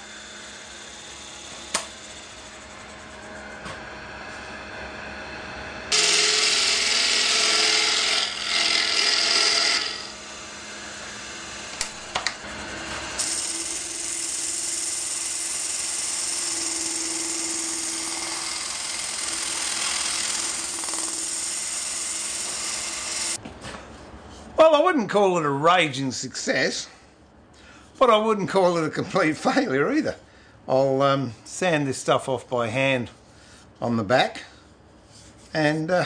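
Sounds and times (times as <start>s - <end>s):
wood lathe gouge cutting: 0.0s - 3.0s, 5.9s - 11.9s, 13.1s - 23.4s
power sander humming: 5.9s - 23.4s.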